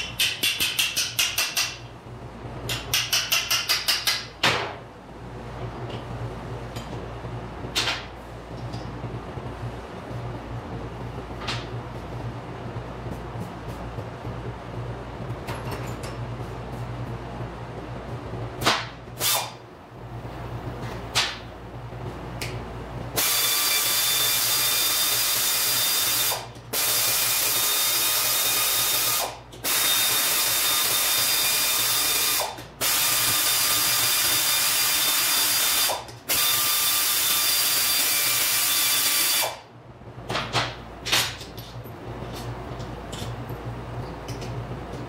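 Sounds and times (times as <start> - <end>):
power ratchet running: 23.2 - 39.6.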